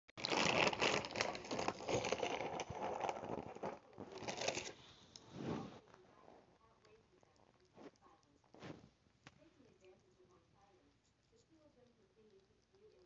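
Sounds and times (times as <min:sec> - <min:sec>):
packaging crinkling: 0:00.2 - 0:04.9.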